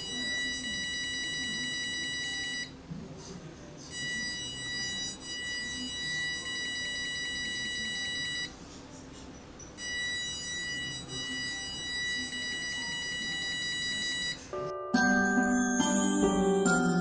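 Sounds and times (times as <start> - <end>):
electronic buzzer high-pitched tone: 0.0 - 2.7, 3.9 - 8.5, 9.8 - 14.4.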